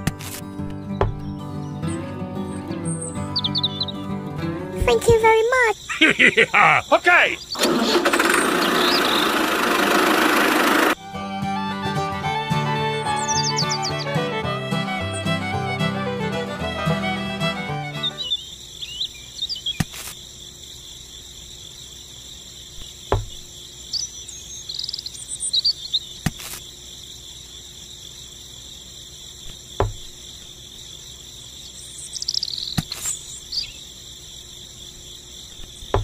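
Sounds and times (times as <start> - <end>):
background music: 0.0 - 5.0, 11.0 - 18.2
crickets chirping: 0.0 - 36.0
bird chirps: 0.8 - 4.1, 5.1 - 9.7, 13.0 - 15.4, 17.8 - 19.9, 22.8 - 26.2, 31.6 - 33.8.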